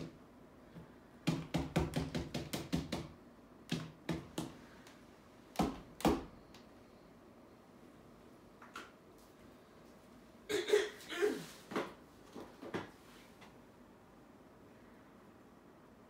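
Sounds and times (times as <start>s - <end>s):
painting tool tapping wall: 1.2s - 4.6s, 5.5s - 6.3s.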